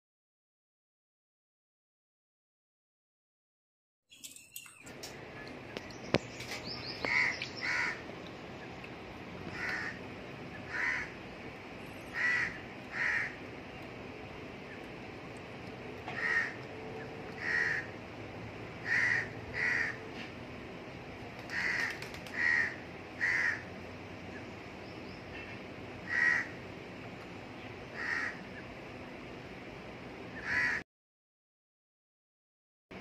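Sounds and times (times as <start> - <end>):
crow cawing: 7.0 - 8.0, 9.5 - 10.0, 10.7 - 11.2, 12.1 - 13.4, 16.0 - 16.7, 17.3 - 17.9, 18.8 - 20.0, 21.5 - 23.6, 26.0 - 26.6, 28.0 - 28.4, 30.4 - 30.8.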